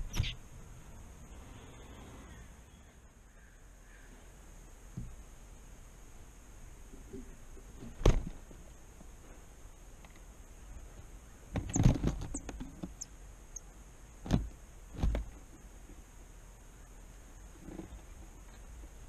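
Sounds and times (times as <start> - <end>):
high bird chirps: 0.0 - 0.4
birds knocking on wicker basket: 11.5 - 13.0.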